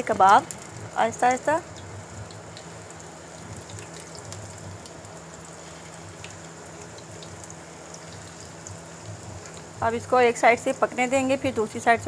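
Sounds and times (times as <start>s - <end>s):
small crackles and pops: 0.0s - 9.8s
patties sizzling in a frying pan: 0.0s - 12.0s.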